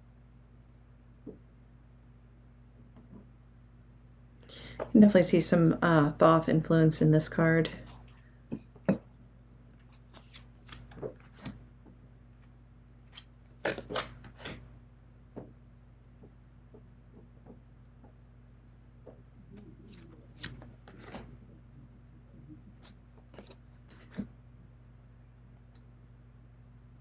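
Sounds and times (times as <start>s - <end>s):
cards sliding and tapping: 9.8s - 11.6s, 19.9s - 21.3s
low hum: 14.2s - 27.0s.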